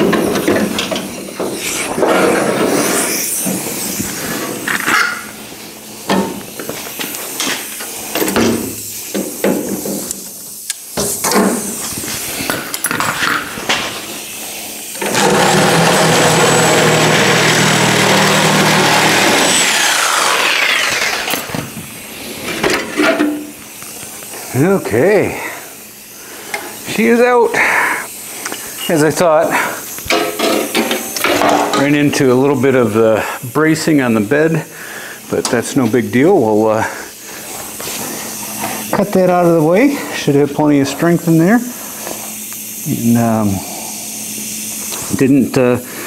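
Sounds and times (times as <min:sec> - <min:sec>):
power cutting tool whining: 0:14.9 - 0:21.9.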